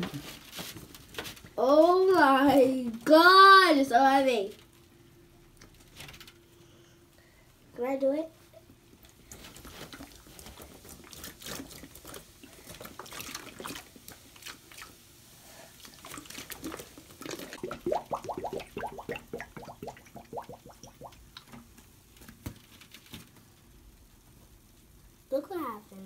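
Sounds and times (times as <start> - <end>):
liquid fizzing in plastic bottle: 9.4 - 21.8.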